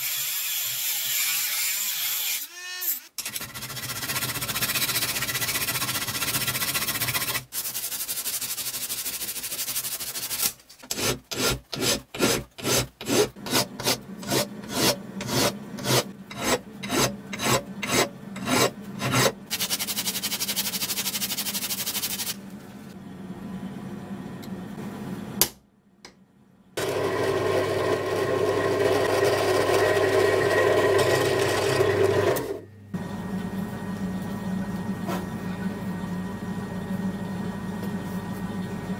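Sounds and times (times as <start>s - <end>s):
hand file scraping metal: 8.9s - 21.3s.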